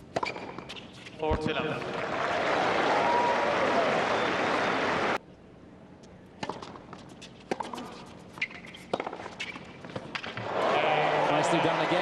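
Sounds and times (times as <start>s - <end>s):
tennis shoes squeaking: 0.0s - 1.2s, 6.4s - 10.4s
racket striking tennis ball: 0.0s - 1.4s, 6.4s - 10.4s
tennis ball bouncing: 0.0s - 1.5s, 6.4s - 10.4s.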